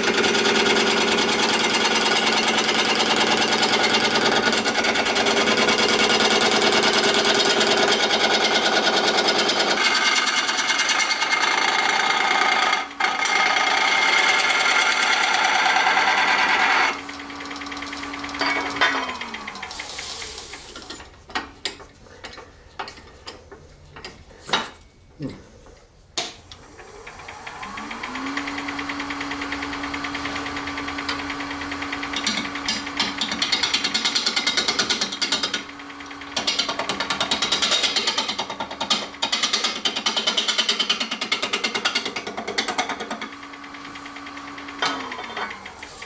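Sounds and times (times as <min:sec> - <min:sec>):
lathe motor humming: 0:00.0 - 0:20.8, 0:26.5 - 0:38.0, 0:42.9 - 0:46.0.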